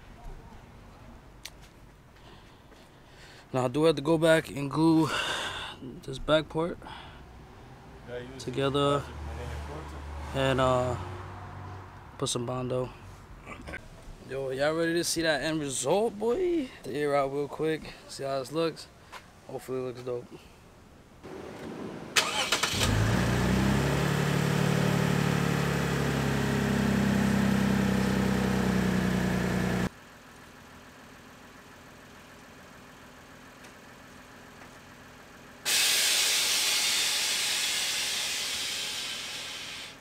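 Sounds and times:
air hissing from suspension: 0:35.7 - 0:40.0.

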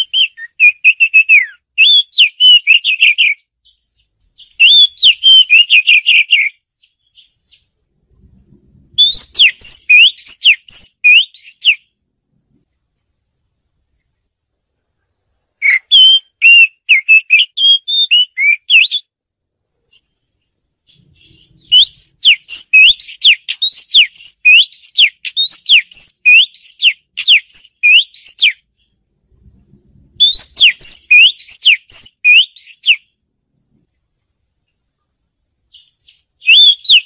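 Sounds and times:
bird singing whistled notes: 0:00.0 - 0:07.8, 0:08.9 - 0:12.0, 0:15.6 - 0:19.2, 0:19.9 - 0:29.0, 0:30.1 - 0:33.2, 0:35.7 - 0:37.0.

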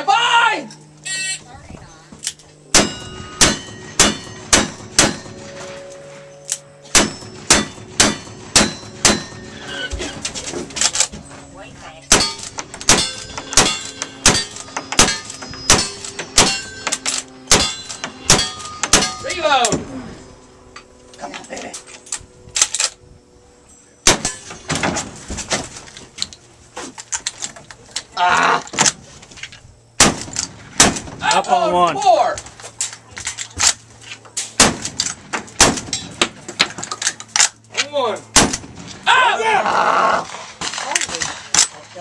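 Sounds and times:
sharp gunshot: 0:02.7 - 0:05.3, 0:06.9 - 0:09.4, 0:12.1 - 0:16.7, 0:17.5 - 0:19.2, 0:24.0 - 0:24.9, 0:30.0 - 0:31.2, 0:34.6 - 0:35.0, 0:35.6 - 0:35.9, 0:38.4 - 0:38.9
ringing steel targets: 0:02.7 - 0:19.8, 0:23.7 - 0:25.0, 0:35.0 - 0:36.3.

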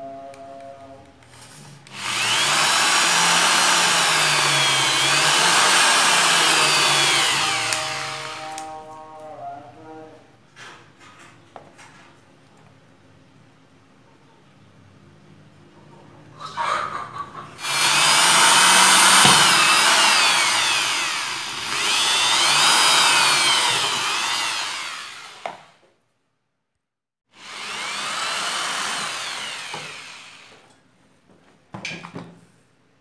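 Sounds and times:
electric drill boring into plastic: 0:01.4 - 0:08.8, 0:17.6 - 0:25.8, 0:27.4 - 0:30.7.

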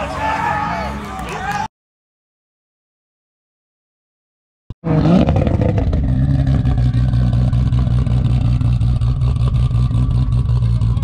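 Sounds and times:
car engine running: 0:04.8 - 0:11.0.

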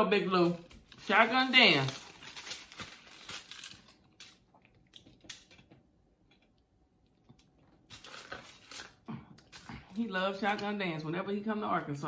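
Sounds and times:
pizza crust crackling: 0:00.4 - 0:04.5.

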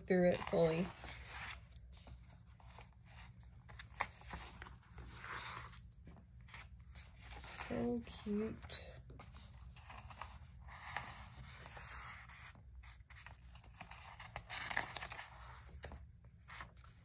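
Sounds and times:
paper pages rustling and sliding: 0:00.0 - 0:17.0.

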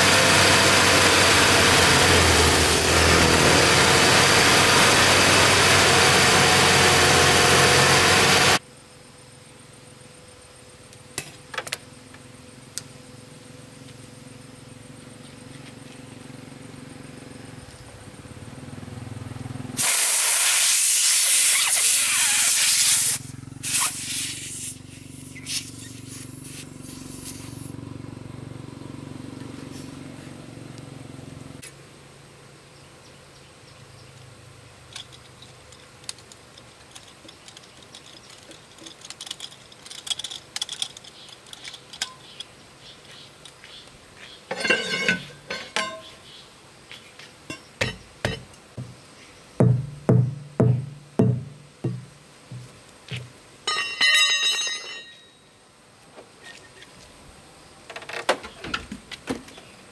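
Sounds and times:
air hissing from tyre valve: 0:19.8 - 0:27.8
metal tool taps and clinks: 0:44.5 - 0:46.1, 0:47.5 - 0:48.6, 0:53.7 - 0:55.3
loud knocks: 0:49.6 - 0:52.7.

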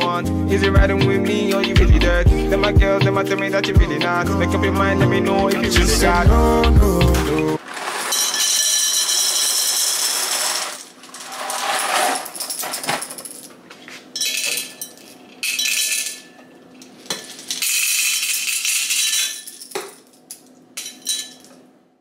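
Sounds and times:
dry pasta clattering into glass jar: 0:07.6 - 0:13.4
glass clinks: 0:14.2 - 0:20.0, 0:20.8 - 0:21.6.

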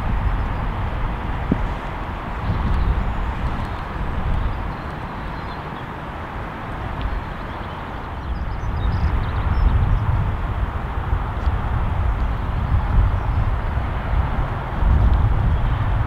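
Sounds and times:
hiss of wind and rain: 0:00.0 - 0:16.0
wind buffeting the microphone: 0:00.0 - 0:16.0.

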